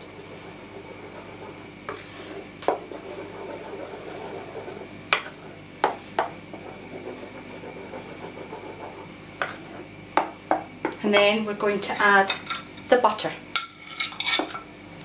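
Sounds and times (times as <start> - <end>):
spoon stirring mixture: 0.2 - 11.3.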